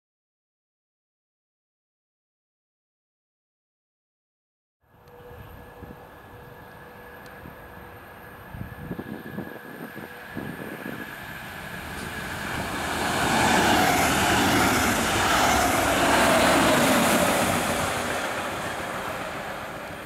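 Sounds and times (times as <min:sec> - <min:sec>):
train passing on rails: 0:04.9 - 0:20.0.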